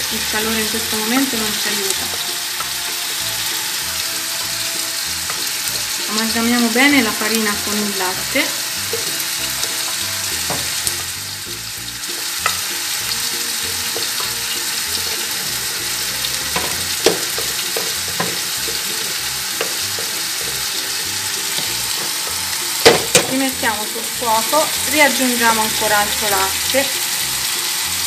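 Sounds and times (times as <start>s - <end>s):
spoon knocking against pot: 8.9s - 10.9s, 16.5s - 20.6s
wooden spoon stirring sauce in pot: 12.4s - 23.2s.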